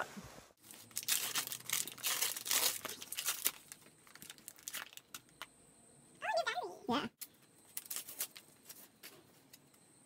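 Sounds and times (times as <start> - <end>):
paper and plastic crinkling: 0.6 - 5.4, 7.7 - 9.6.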